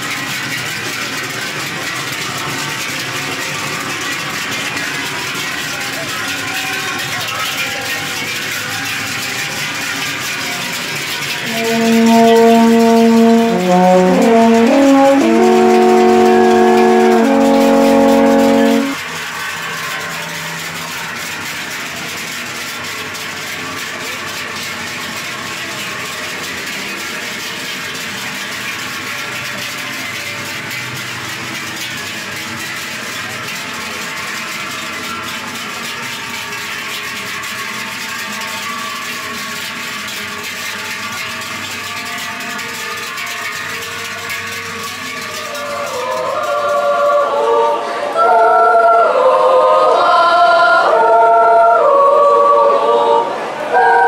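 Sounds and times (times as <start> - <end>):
cowbells clanging: 0.0 - 47.5
choir singing: 11.5 - 19.0, 45.5 - 54.0.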